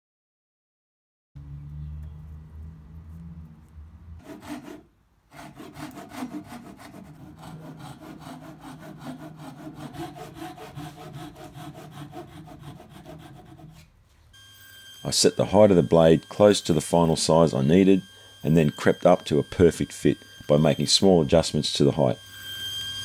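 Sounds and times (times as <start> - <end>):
hand saw cutting wood: 4.2 - 13.9.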